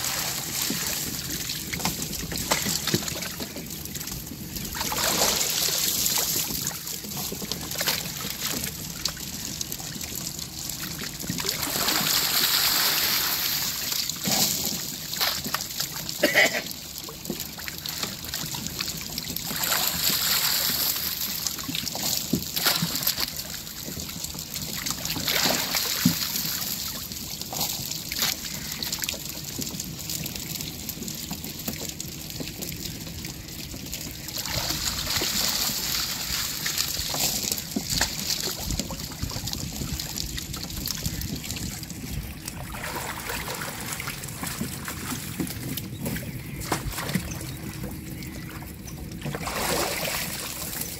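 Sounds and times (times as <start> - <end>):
running water: 0.0 - 50.9
water sloshing from wading: 31.5 - 50.9.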